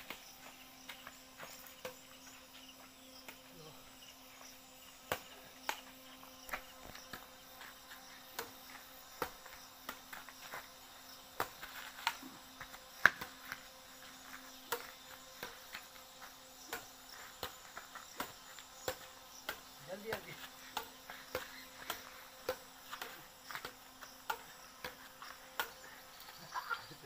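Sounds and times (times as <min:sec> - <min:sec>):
insects chirping: 0:00.0 - 0:27.0.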